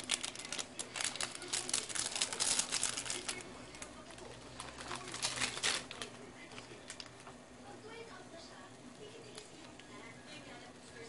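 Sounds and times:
foil sachet crinkling: 0.0 - 7.2.

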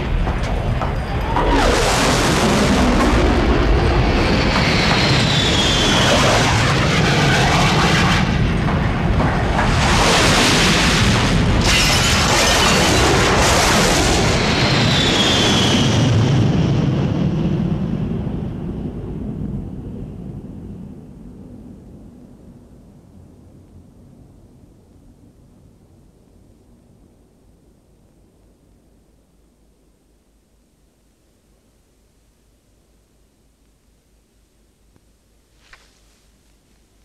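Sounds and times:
high jet whine falling in pitch: 0.0 - 17.4
jet aircraft roaring overhead: 0.0 - 22.3.

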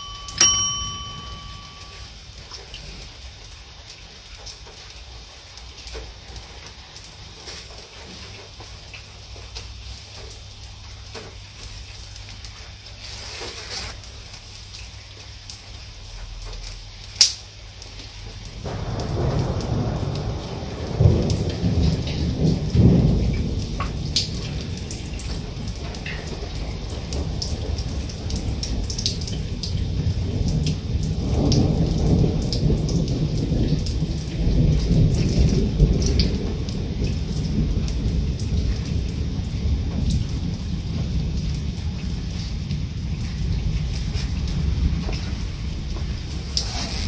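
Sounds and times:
rain hissing: 0.0 - 47.0
thunder rumbling: 18.3 - 46.6.

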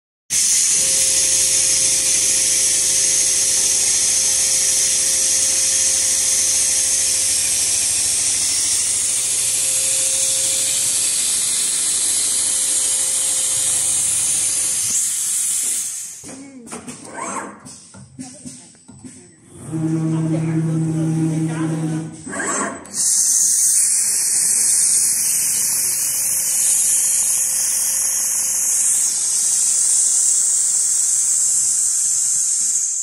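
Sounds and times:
loud steady hiss: 0.3 - 16.5, 22.9 - 33.0
machine hum: 19.0 - 32.0.

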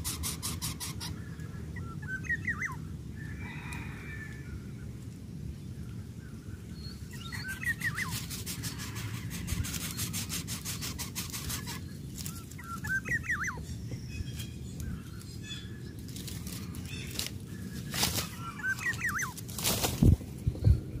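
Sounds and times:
warbling bird call: 0.0 - 4.7, 7.0 - 15.8, 16.5 - 19.4
palm fronds and nest rustling: 7.3 - 21.0
bird wings flapping: 17.9 - 20.3.

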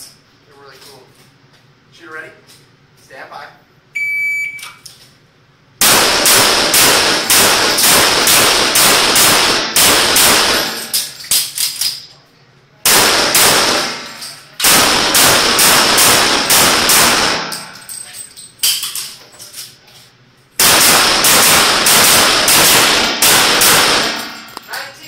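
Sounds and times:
pistol firing rapid shots: 5.8 - 10.9, 12.8 - 17.6, 20.6 - 24.4.

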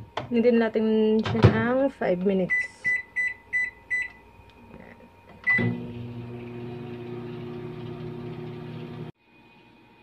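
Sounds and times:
microwave keypad beeps: 2.5 - 4.2, 5.4 - 5.8
microwave oven humming: 3.1 - 10.0.

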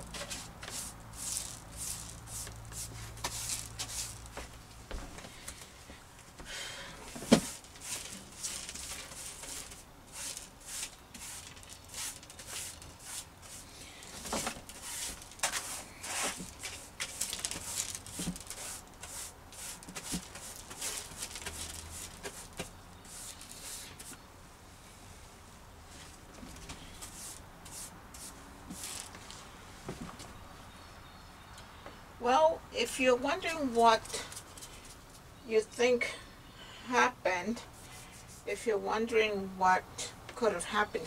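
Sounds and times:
glass shards brushed on floor: 0.0 - 4.3.

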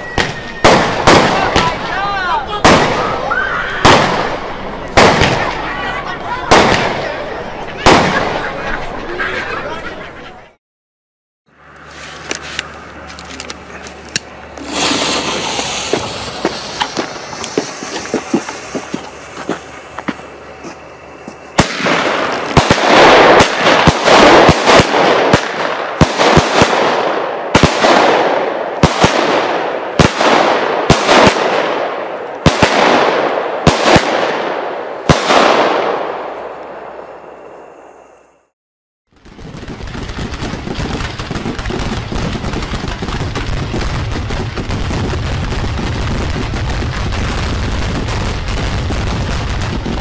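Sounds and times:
firework shots: 0.0 - 8.7, 14.1 - 37.1, 39.1 - 50.0
fuse hissing: 14.4 - 21.4.

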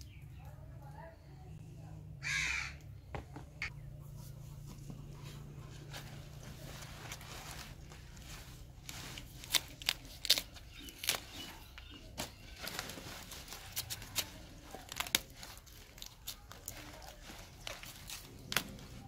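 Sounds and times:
leafy rustling: 5.0 - 19.0
crisp snaps of leaves torn off: 9.3 - 11.6.

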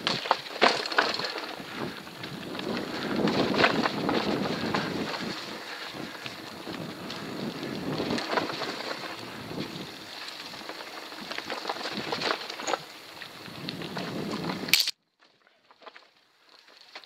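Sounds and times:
bike rattling over bumps: 0.0 - 14.8
bike tyres rolling over stones: 0.0 - 17.0
wind on microphone: 1.6 - 10.0, 13.5 - 14.7.

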